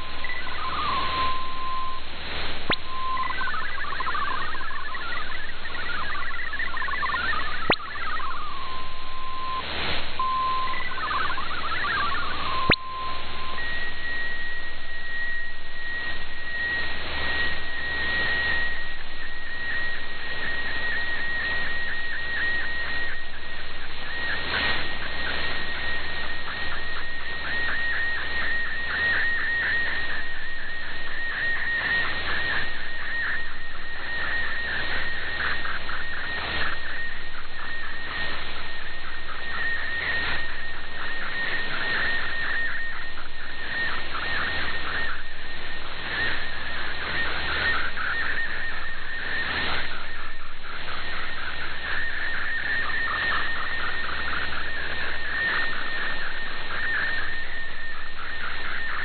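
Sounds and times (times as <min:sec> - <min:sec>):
digital data tones warbling: 0:00.0 - 0:59.0
high flickering data tone: 0:00.0 - 0:59.0
radio hiss and static: 0:00.0 - 0:59.0.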